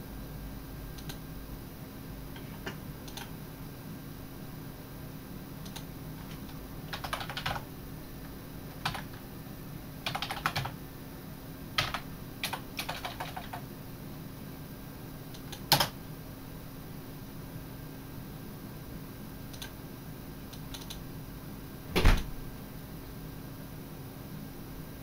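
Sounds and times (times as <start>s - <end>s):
faint room hum: 0.0s - 25.0s
typing on computer keyboard: 3.1s - 3.3s, 5.6s - 7.6s, 8.7s - 9.2s, 10.0s - 10.8s, 11.8s - 13.6s, 15.4s - 16.0s, 19.6s - 19.8s, 20.6s - 21.0s.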